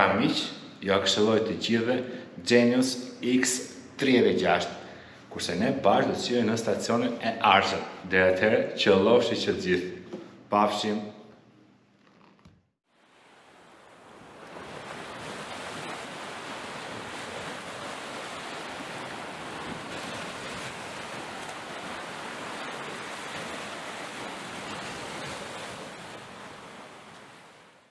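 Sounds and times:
rush of ocean water: 0:12.9 - 0:27.9.

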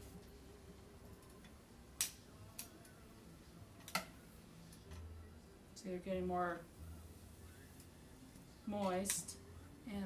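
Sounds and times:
metal tongs clicking on pan: 0:08.8 - 0:09.4.

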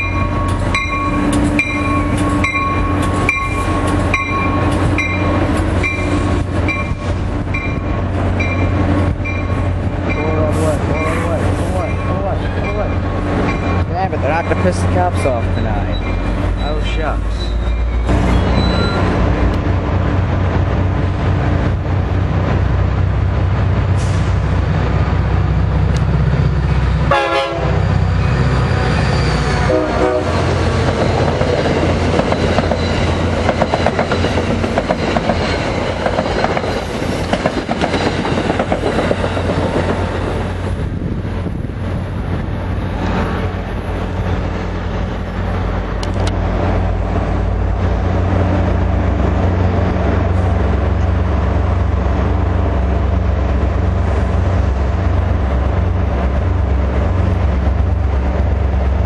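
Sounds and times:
train wheel clatter: 0:00.0 - 0:19.7, 0:30.3 - 0:40.9
train air horn blasts: 0:27.1 - 0:27.8, 0:29.6 - 0:30.4.

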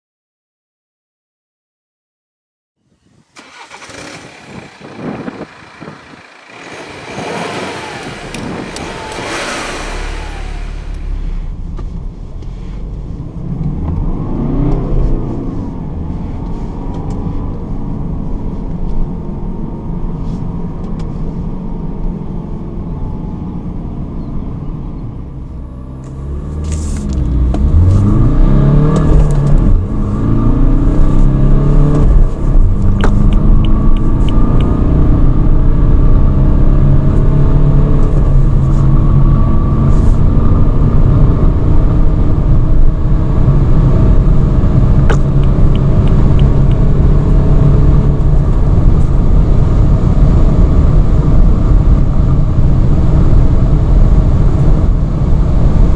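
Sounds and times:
whooshing noise: 0:03.4 - 0:18.0
turbodiesel engine running: 0:03.4 - 0:55.9.

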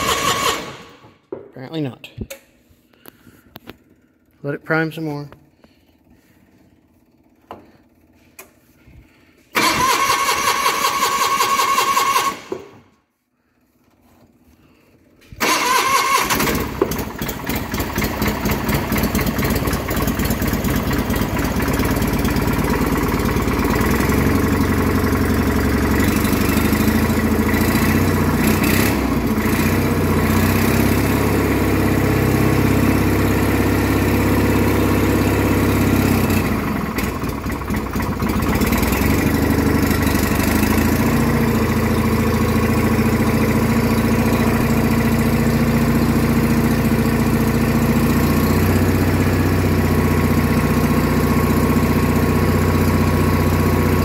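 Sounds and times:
electric starter cranking engine: 0:00.0 - 0:01.2, 0:09.5 - 0:12.9, 0:15.3 - 0:32.0, 0:33.6 - 0:41.7
engine idling: 0:03.0 - 0:12.7, 0:14.4 - 0:54.0.

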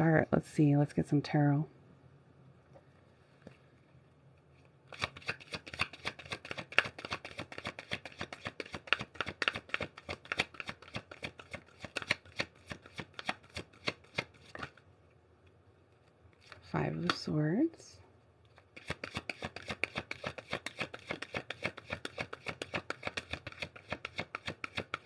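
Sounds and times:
cards being shuffled: 0:04.9 - 0:14.8, 0:18.6 - 0:25.0.

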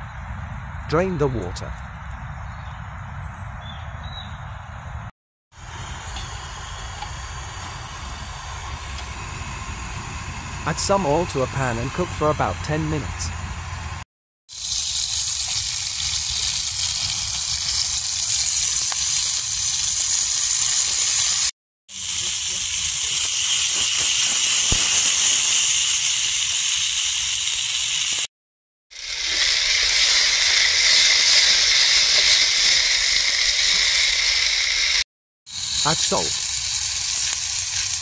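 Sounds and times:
chestnuts sizzling in hot oil: 0:14.5 - 0:28.3, 0:29.0 - 0:38.0.

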